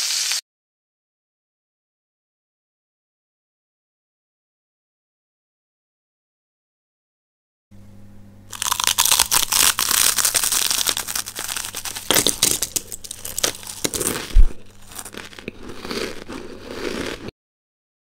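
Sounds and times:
dense crinkling and crackling: 8.6 - 17.3.

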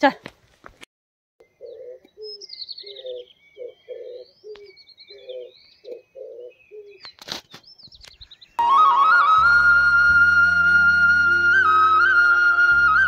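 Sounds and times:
dove cooing: 1.4 - 7.0
small birds chirping: 1.4 - 8.6.

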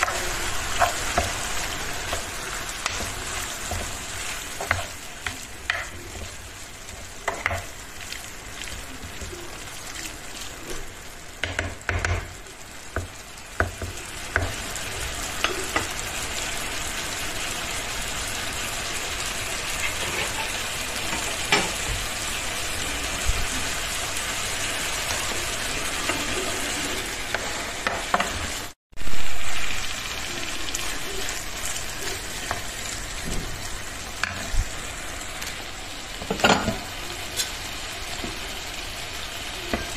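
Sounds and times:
wooden spoon scraping a pan: 0.0 - 9.3, 19.7 - 21.8
vegetables sizzling in oil: 0.0 - 39.9.

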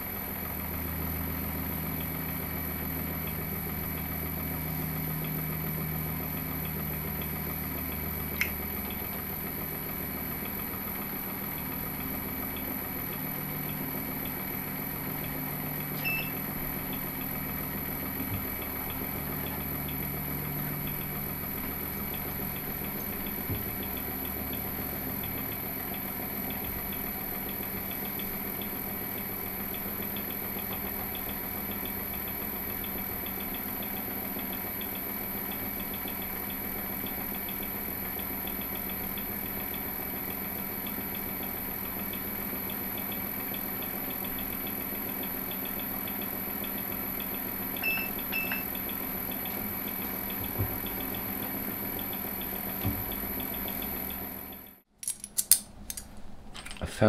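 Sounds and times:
electric motor humming: 0.4 - 54.7
sharp metallic click: 8.4 - 8.6, 55.0 - 56.9.

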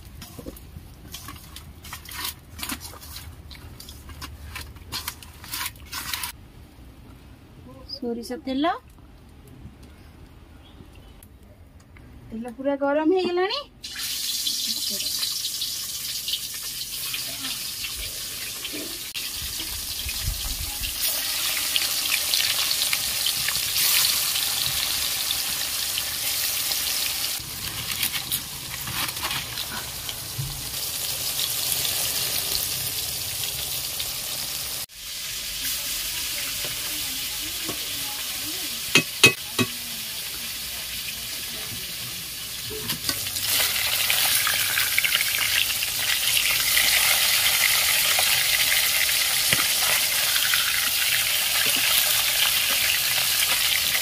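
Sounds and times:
fish frying in oil: 13.8 - 54.0.

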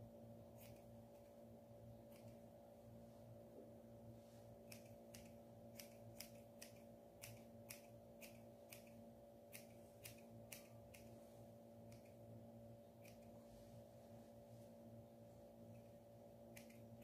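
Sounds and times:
steady low hum: 0.0 - 17.0
scissors snipping fur: 0.5 - 1.3, 2.0 - 2.5, 4.6 - 11.2, 11.8 - 12.2, 12.9 - 13.4, 15.7 - 17.0.

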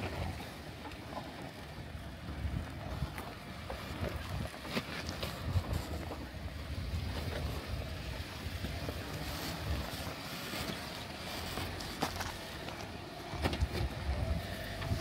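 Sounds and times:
off-road vehicle engine running: 0.0 - 15.0
wind buffeting microphone: 1.5 - 12.4, 13.3 - 15.0.

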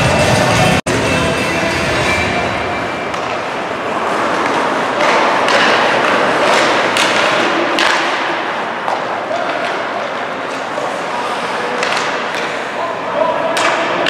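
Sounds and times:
crowd hum: 0.0 - 14.0
hockey sticks and puck knocking: 3.1 - 10.9, 11.7 - 12.6, 13.5 - 14.0.

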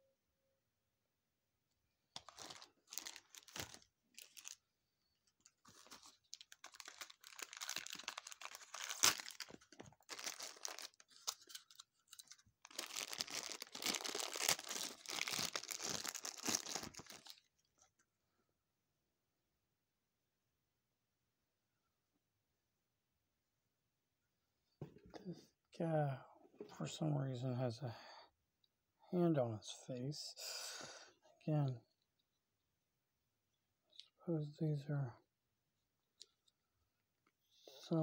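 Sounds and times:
plastic packaging crinkling: 2.2 - 4.6, 5.3 - 17.9.

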